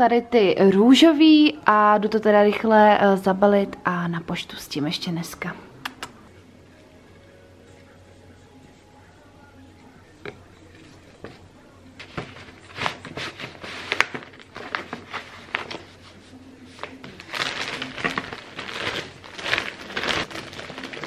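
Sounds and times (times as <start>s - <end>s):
paper rustling and crinkling: 10.8s - 21.0s.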